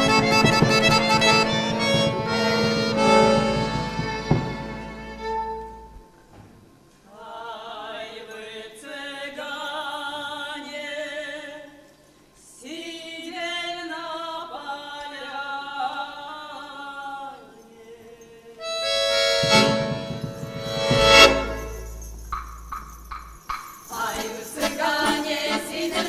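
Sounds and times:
unaccompanied folk singing: 0:00.0 - 0:04.9, 0:23.9 - 0:26.0.

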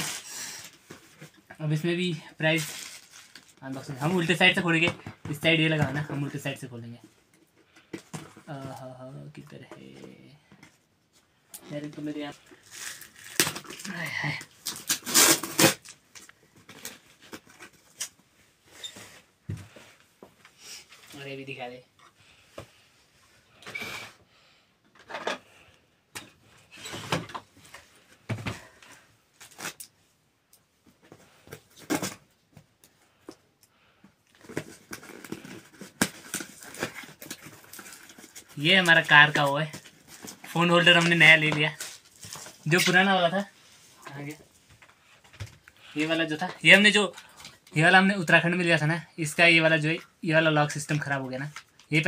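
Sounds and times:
cardboard and tape crinkling tearing: 0:00.0 - 0:00.9, 0:02.5 - 0:03.6, 0:12.4 - 0:18.2, 0:34.4 - 0:43.0
packing tape ripping: 0:12.6 - 0:16.0, 0:34.4 - 0:38.5
tape being cut: 0:14.6 - 0:16.0.

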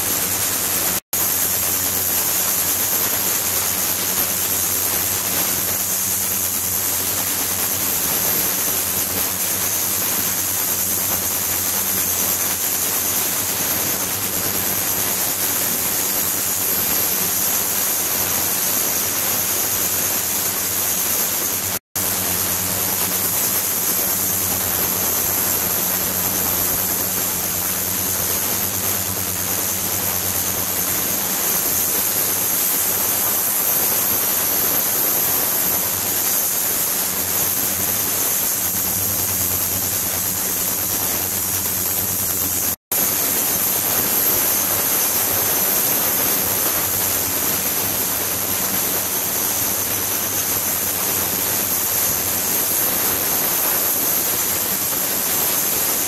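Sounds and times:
ultrasonic tank hissing and humming: 0:00.0 - 0:56.0.

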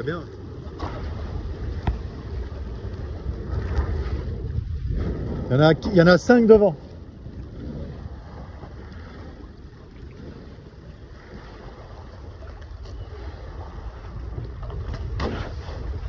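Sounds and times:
water rushing past hull: 0:00.0 - 0:16.0
wind rumbling on microphone: 0:00.0 - 0:16.0
short splash: 0:14.8 - 0:16.0.

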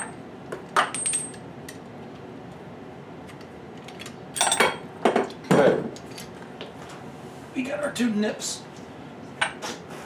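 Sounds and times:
metal tools and pipes clattering: 0:04.0 - 0:04.8.

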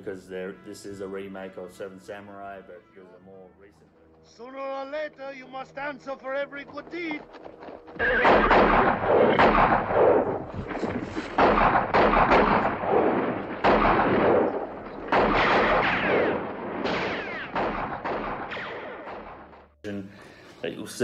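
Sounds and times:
loud echoing gunshots: 0:08.0 - 0:19.8.

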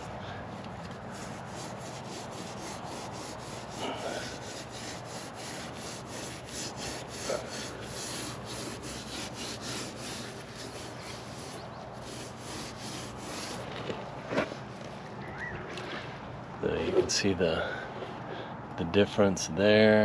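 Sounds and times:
sponge scrubbing gritty mortar: 0:01.0 - 0:13.7.

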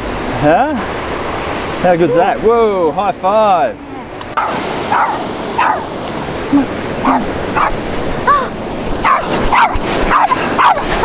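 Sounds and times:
surf breaking: 0:00.0 - 0:11.0
small dog yapping: 0:04.4 - 0:05.9, 0:07.0 - 0:11.0.

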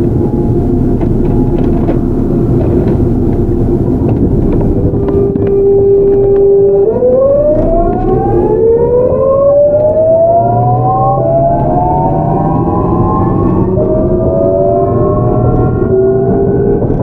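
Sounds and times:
low rumble of running train: 0:00.0 - 0:17.0
train inverter whine rising: 0:00.0 - 0:17.0.

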